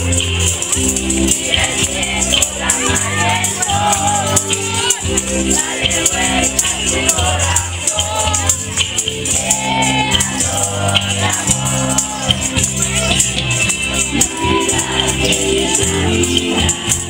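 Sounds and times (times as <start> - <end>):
christmas carol with bass line: 0.0 - 17.0
hand tambourines jingling: 0.0 - 17.0
children singing: 1.0 - 17.0.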